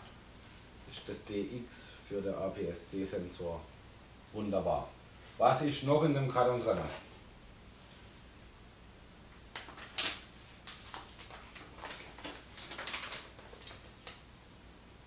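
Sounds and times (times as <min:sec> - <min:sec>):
paper rustling: 0:09.5 - 0:14.2.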